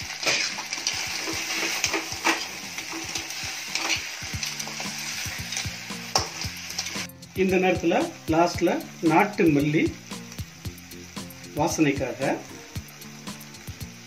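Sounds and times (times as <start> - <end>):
crab pieces sizzling in hot oil: 0.0 - 14.0
spatula scraping and knocking pan: 0.2 - 6.9.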